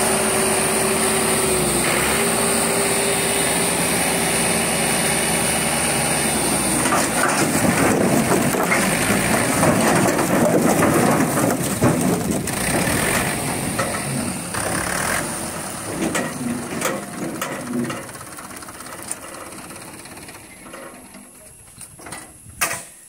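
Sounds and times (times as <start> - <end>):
tractor engine running: 0.0 - 22.6
logs tumbling and clattering: 6.8 - 14.4, 15.6 - 22.8.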